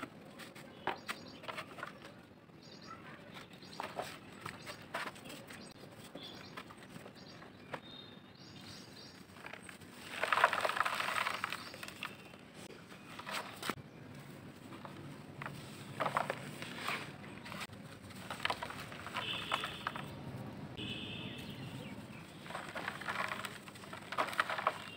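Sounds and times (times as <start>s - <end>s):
gritty lumps crumbled by hand: 9.2s - 13.8s, 14.7s - 20.2s, 21.5s - 24.9s.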